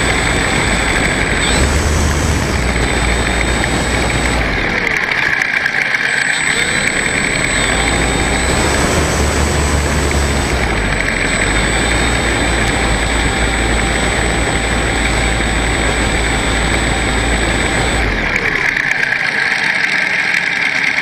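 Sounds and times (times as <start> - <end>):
model plane motor and propeller: 0.0 - 21.0.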